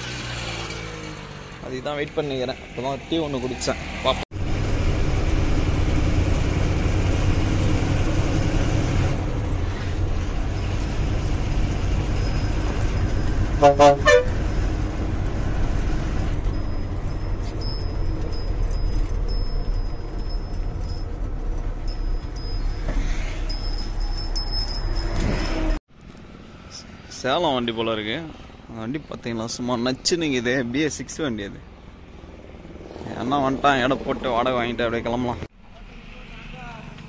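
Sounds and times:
idling engines and road traffic: 0:00.0 - 0:37.0
vehicle horn toots: 0:13.6 - 0:14.6.

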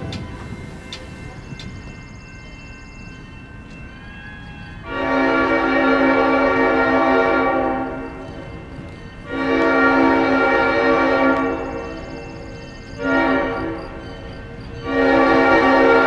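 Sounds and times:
train horn blasts: 0:04.2 - 0:08.3, 0:09.2 - 0:12.3, 0:12.9 - 0:14.1, 0:14.8 - 0:16.0.

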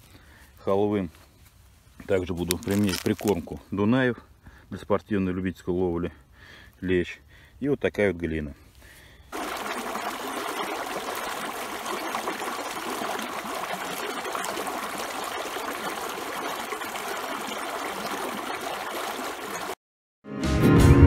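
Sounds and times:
stream water rushing over stones: 0:02.5 - 0:03.4, 0:09.3 - 0:19.8.

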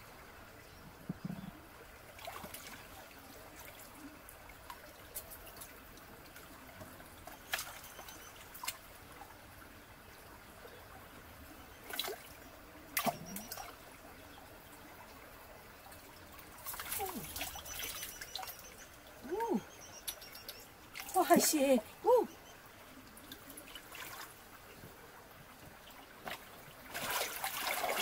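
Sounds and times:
stream water trickling: 0:00.0 - 0:28.0
sharp splashes: 0:26.3 - 0:28.0.

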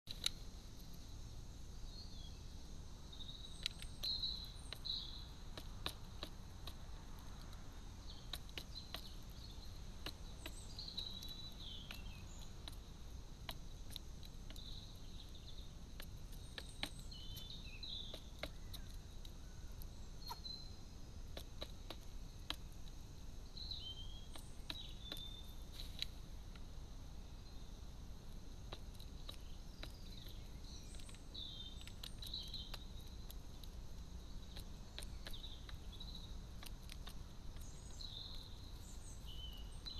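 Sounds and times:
small songbirds chirping: 0:00.0 - 0:39.9
low background noise: 0:00.1 - 0:39.9
crow beak pecking plastic dish: 0:03.5 - 0:20.4, 0:21.3 - 0:23.0, 0:28.2 - 0:39.9.

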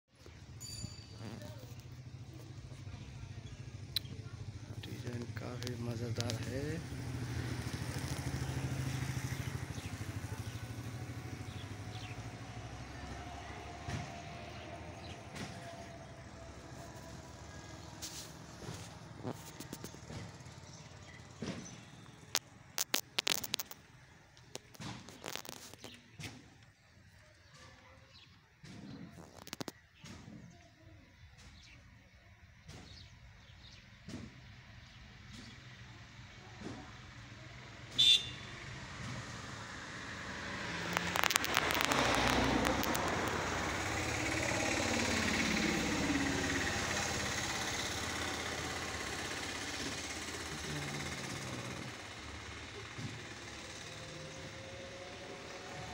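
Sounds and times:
low outdoor background noise: 0:00.1 - 0:55.9
passing vehicle engine: 0:00.7 - 0:26.4, 0:34.1 - 0:55.9
burst of clicks: 0:22.3 - 0:26.0, 0:40.7 - 0:43.8
sharp snapping cracks: 0:22.4 - 0:26.4, 0:40.6 - 0:43.5.

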